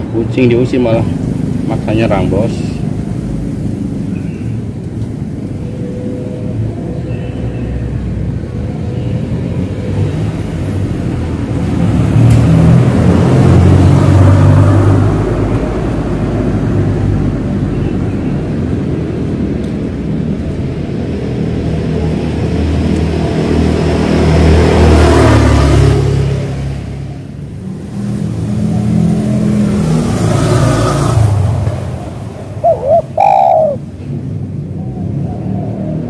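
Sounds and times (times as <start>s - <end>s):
traffic engine rumble: 0.0s - 36.0s
vehicle passing by: 9.2s - 36.0s.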